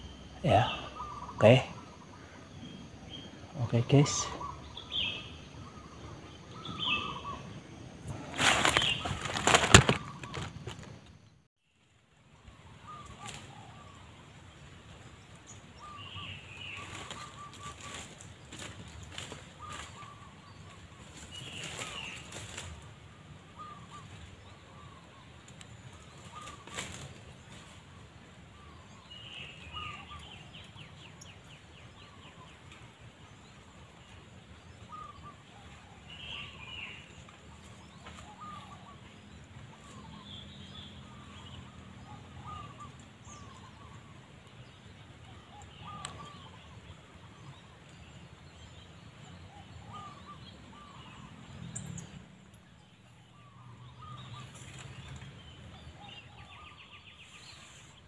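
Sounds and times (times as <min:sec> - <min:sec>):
small birds chirping: 0:00.0 - 0:58.0
dove cooing: 0:42.0 - 0:43.5.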